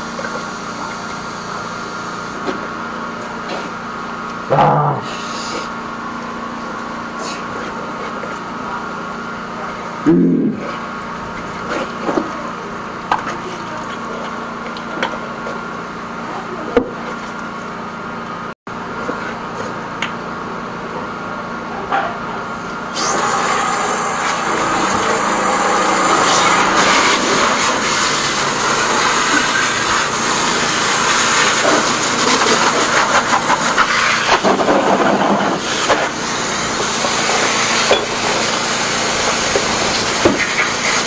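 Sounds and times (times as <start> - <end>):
pump motor humming: 22.8 - 41.0.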